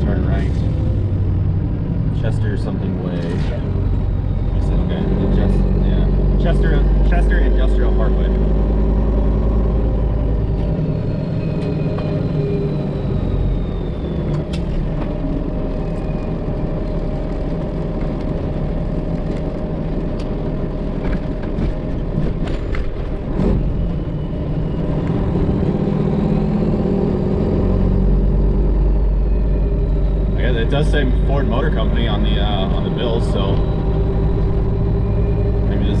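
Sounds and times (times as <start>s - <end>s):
truck diesel engine rumble: 0.0s - 36.0s.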